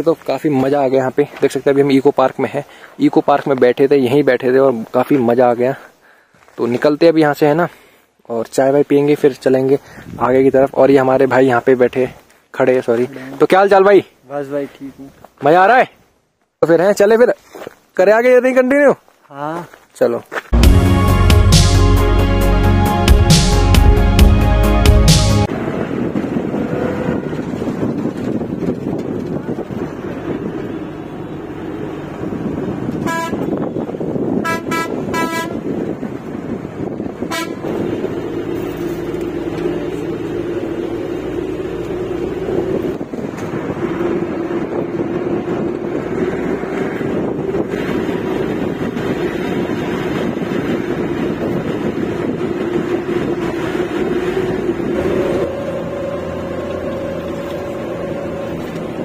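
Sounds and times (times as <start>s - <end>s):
bus engine and road rumble: 23.2s - 59.0s
vehicle horn honking: 26.7s - 27.6s, 33.0s - 33.8s, 34.4s - 35.7s, 37.3s - 37.8s, 55.0s - 59.0s.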